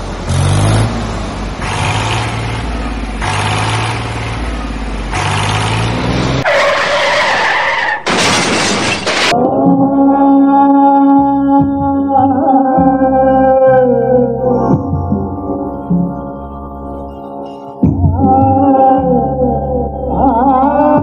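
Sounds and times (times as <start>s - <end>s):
small tractor engine humming: 0.0s - 6.6s
tractor churning through muddy water: 0.0s - 7.9s
music: 9.4s - 21.0s.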